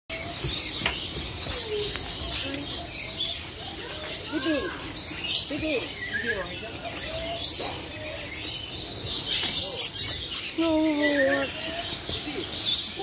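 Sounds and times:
small birds chirping: 0:00.1 - 0:13.0.

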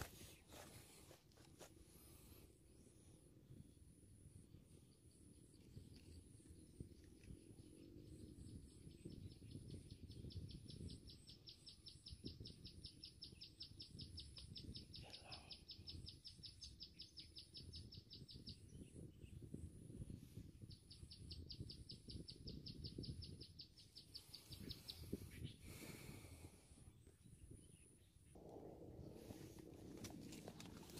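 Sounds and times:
low rumble: 0:28.4 - 0:30.9.

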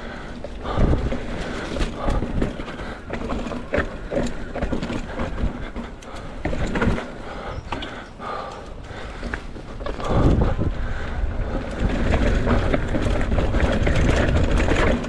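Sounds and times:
mountain bike rattling over roots: 0:00.0 - 0:15.0.

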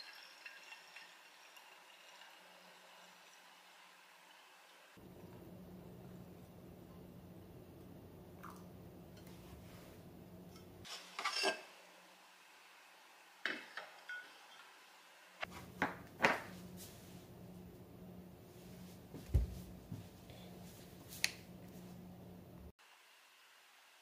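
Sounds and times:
low room hum: 0:04.9 - 0:11.0, 0:15.4 - 0:22.7
glass clinking on ceramic and wood: 0:13.5 - 0:14.7.

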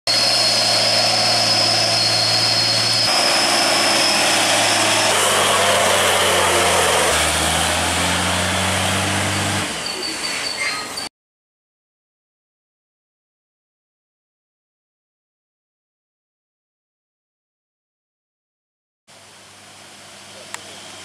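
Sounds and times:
steady high whine: 0:00.1 - 0:10.1
diesel truck engines labouring: 0:00.1 - 0:11.1, 0:19.2 - 0:21.0.

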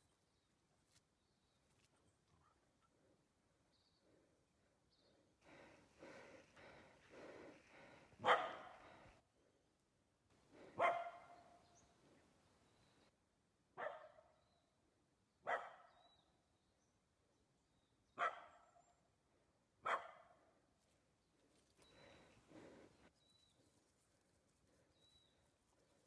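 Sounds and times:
dog barking: 0:08.2 - 0:09.0, 0:10.8 - 0:11.6, 0:13.8 - 0:14.3, 0:15.4 - 0:16.0, 0:18.2 - 0:18.7, 0:19.8 - 0:20.4.

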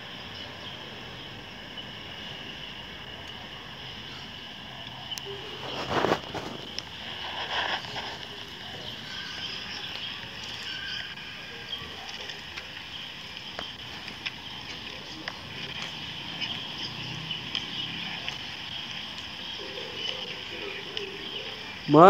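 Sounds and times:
bicycle tyres hissing on paving: 0:00.0 - 0:22.0
bike rattles and clicks: 0:04.8 - 0:22.0.

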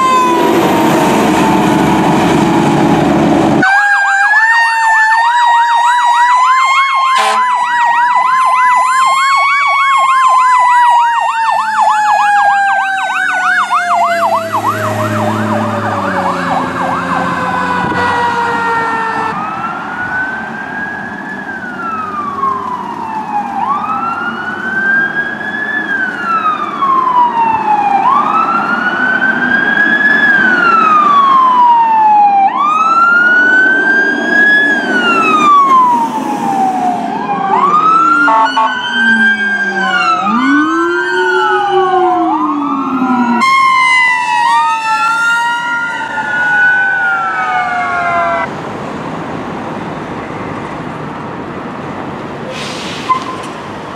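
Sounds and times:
electronic yelp siren: 0:00.0 - 0:02.0, 0:03.6 - 0:48.5
wail siren: 0:00.0 - 0:48.5.

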